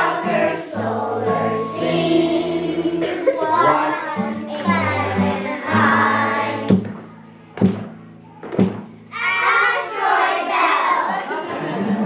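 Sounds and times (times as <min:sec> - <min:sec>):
group singing: 0:00.0 - 0:06.9, 0:09.3 - 0:11.7
acoustic guitar: 0:00.0 - 0:12.0
children shouting together: 0:09.1 - 0:11.4.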